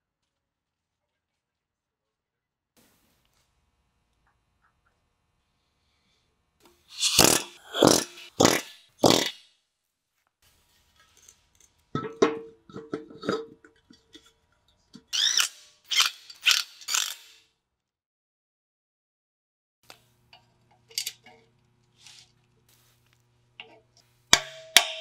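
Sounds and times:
cordless driver whirring: 15.1 - 17.4.

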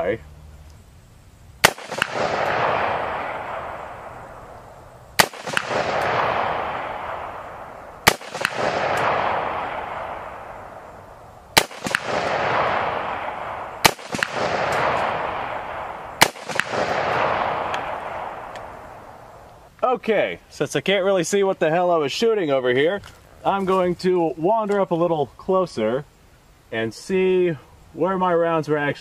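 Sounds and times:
rifle shots: 1.6 - 19.4
gunshot echo rolling: 1.6 - 19.5.

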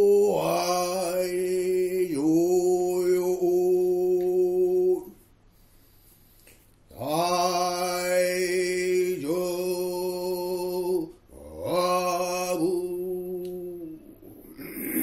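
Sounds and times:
person chanting: 0.0 - 5.2, 6.9 - 15.0.

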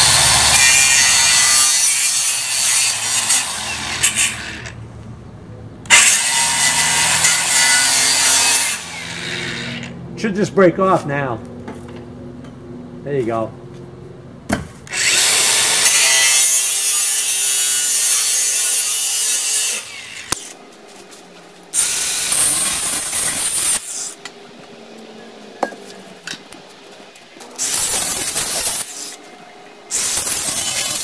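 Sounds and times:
angle grinder cutting metal: 0.0 - 4.8, 5.9 - 10.0, 14.9 - 20.6, 21.8 - 24.2, 27.6 - 29.2, 29.9 - 31.0.

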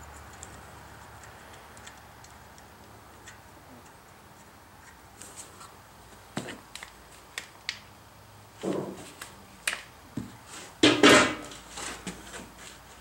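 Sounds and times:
hand tools clicking and tapping: 0.0 - 5.0.

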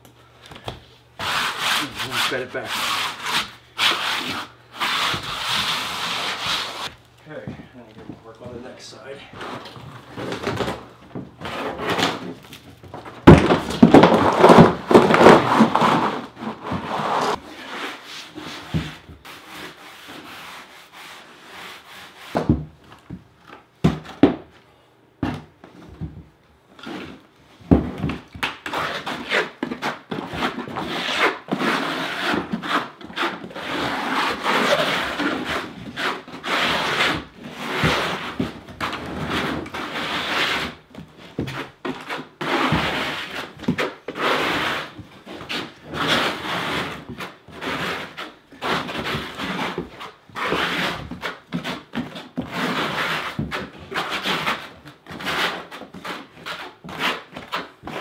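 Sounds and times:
trowel scraping mortar on plywood: 1.2 - 6.9, 13.8 - 20.7, 28.7 - 58.0.

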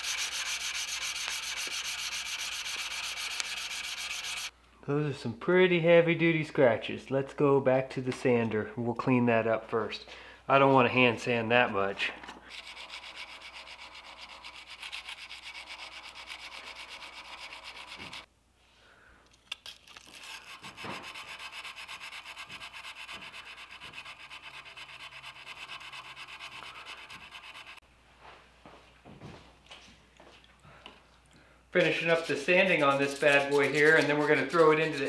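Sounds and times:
sandpaper rubbing on steel blade: 0.0 - 4.5, 12.5 - 18.3, 20.0 - 27.8, 31.8 - 35.0.

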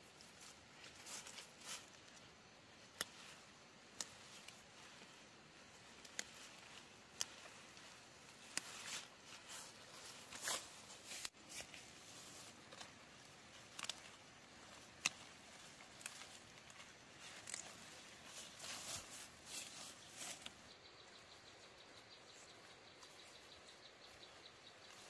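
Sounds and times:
leaves rustling: 0.0 - 25.0
plant stems snapping: 2.8 - 4.6, 6.0 - 9.0, 12.7 - 20.6.

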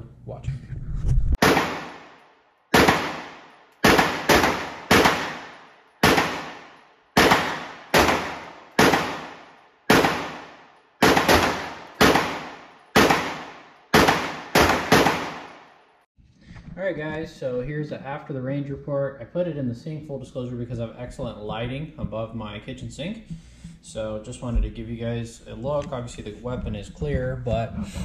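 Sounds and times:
pistol shots echoing indoors: 1.4 - 15.7.

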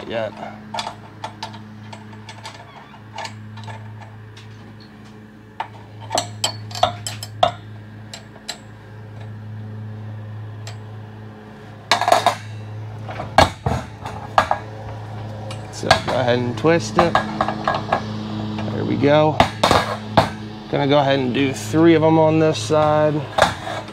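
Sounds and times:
steady low hum: 0.0 - 23.9
steel bars clinking on metal: 6.0 - 8.7.

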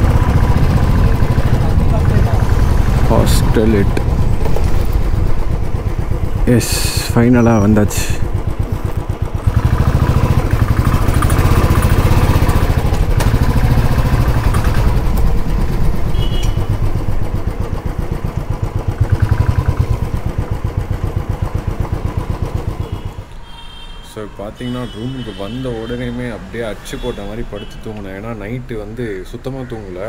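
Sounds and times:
motorcycle engine running: 0.0 - 23.3.

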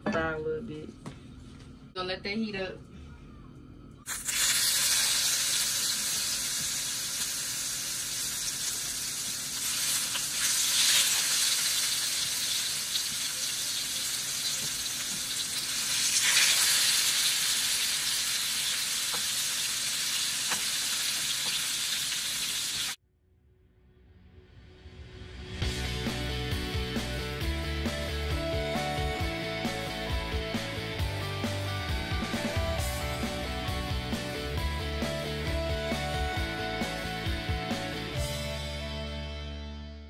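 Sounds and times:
fish sizzling in a frying pan: 4.1 - 23.0.

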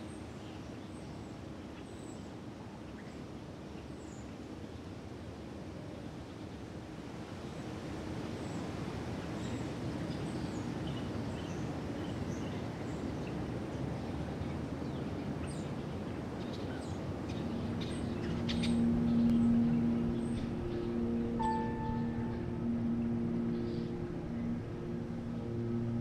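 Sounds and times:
low sustained tones: 15.3 - 26.0
steady rushing noise: 15.3 - 26.0
bird chirps: 16.6 - 26.0.

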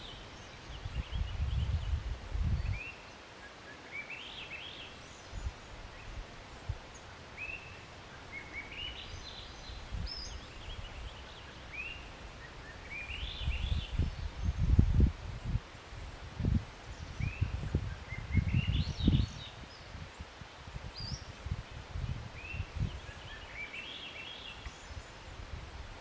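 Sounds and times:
songbird singing high chirps: 0.0 - 26.0
low rumbling on microphone: 13.3 - 23.2.

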